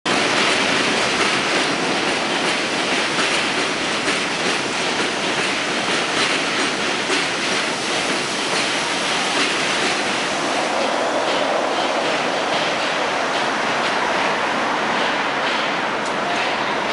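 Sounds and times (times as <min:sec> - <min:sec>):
train rail noise: 0:00.1 - 0:16.9.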